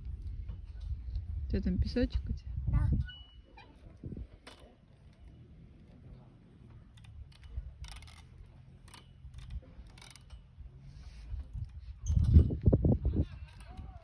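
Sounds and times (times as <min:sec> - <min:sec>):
swing hooks clicking and creaking: 0:02.9 - 0:14.0.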